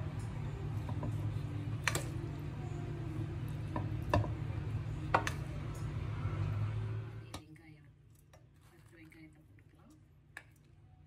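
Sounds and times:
steady low hum: 0.0 - 8.2.

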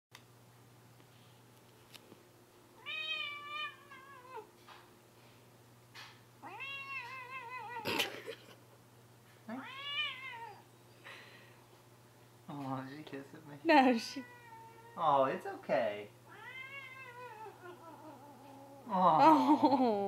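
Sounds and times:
cat meowing: 2.8 - 4.5, 6.4 - 7.9, 9.5 - 10.6, 14.1 - 15.1, 16.3 - 18.7.

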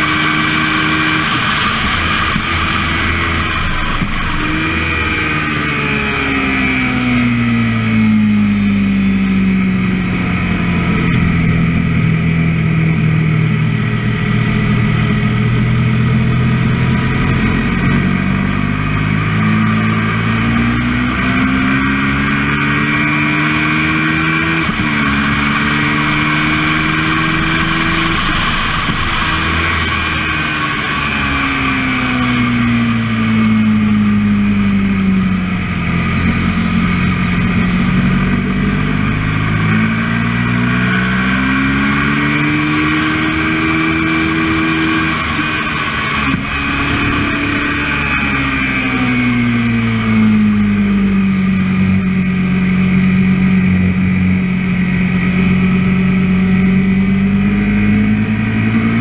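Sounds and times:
heavy wind rush: 0.0 - 6.4
motorcycle engine revving: 0.0 - 59.0.

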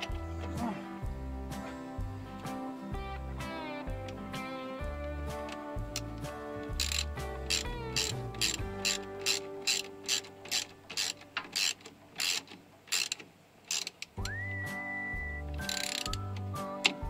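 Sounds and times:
ratchet wrench clicking: 5.9 - 14.2, 15.6 - 16.2.

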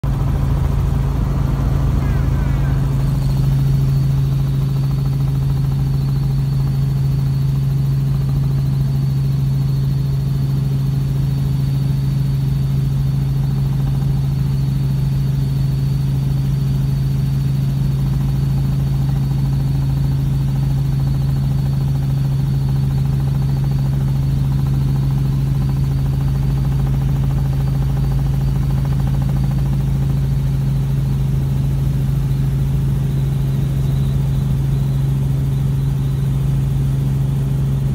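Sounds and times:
faint high whine: 0.0 - 37.9
helicopter engine and rotor drone: 0.0 - 37.9.

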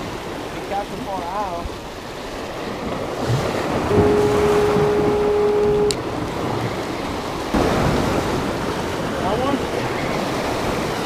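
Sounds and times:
surf washing over rocks: 0.0 - 11.0
steady single-pitched tone: 3.9 - 6.1.

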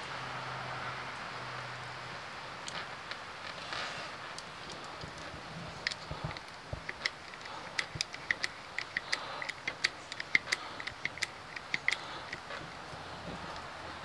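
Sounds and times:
hydraulic crimper clicking: 5.8 - 12.6.

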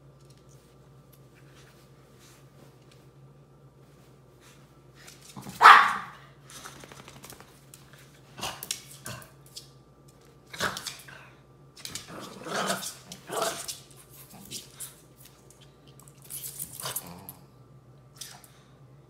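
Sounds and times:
dogs barking: 5.6 - 6.2.

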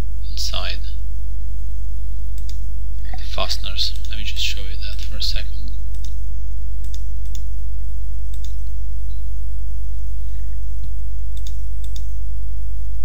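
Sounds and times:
low hum: 0.0 - 13.0
computer mouse clicks: 2.4 - 2.6, 5.9 - 6.2, 6.8 - 7.5, 8.3 - 9.2, 10.8 - 12.2.

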